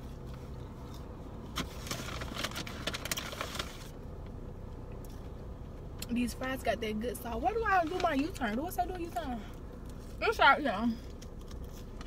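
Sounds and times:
car idling hum: 0.0 - 12.0
paper bag rustling: 1.6 - 3.9.

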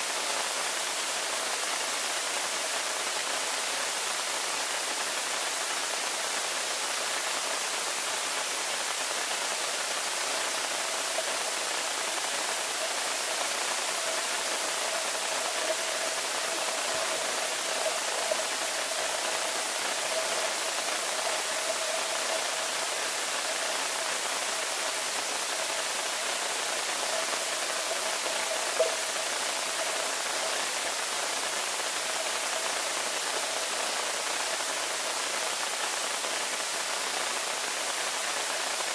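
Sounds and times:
faint steady hum: 0.0 - 38.9
underwater hiss of water: 0.0 - 38.9.

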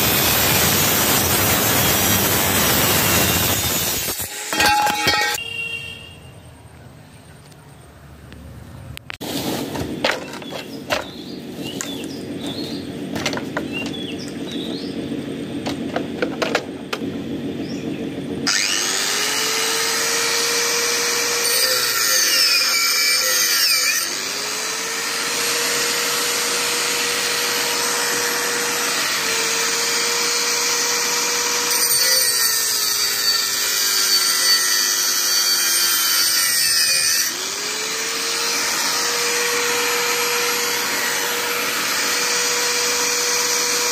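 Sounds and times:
angle grinder cutting metal: 0.0 - 5.4, 15.7 - 43.9.

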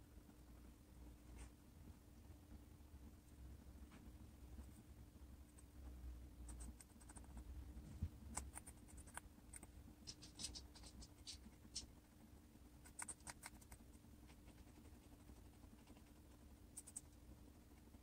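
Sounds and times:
steady low hum: 0.0 - 18.0
guinea pig chewing crunches: 8.2 - 18.0.

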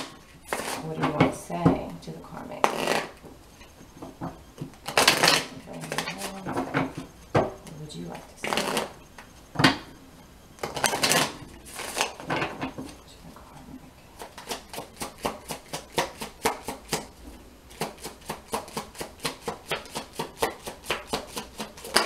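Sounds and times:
cards rustling: 4.6 - 7.8, 10.6 - 13.1.

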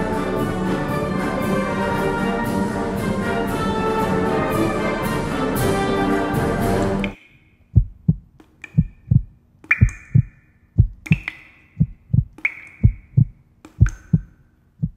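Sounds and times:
low double thumps: 7.8 - 11.2, 11.8 - 14.9.

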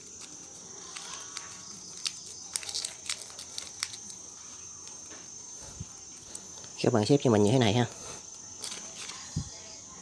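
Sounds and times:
paper being folded and creased: 0.0 - 4.2
high-pitched insect trill: 0.0 - 10.0.

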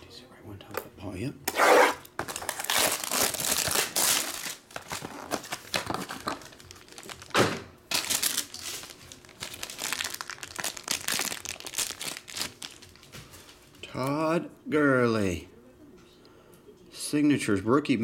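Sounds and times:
plastic wrapping crinkling: 2.1 - 14.0.

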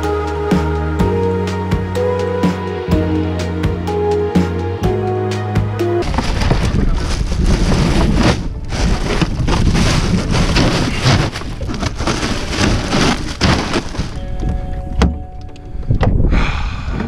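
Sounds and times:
crushed ice crunching: 6.0 - 14.5.

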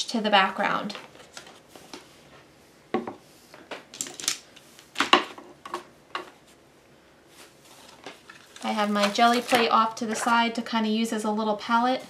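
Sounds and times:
art supplies clattering on a table: 7.9 - 10.4.

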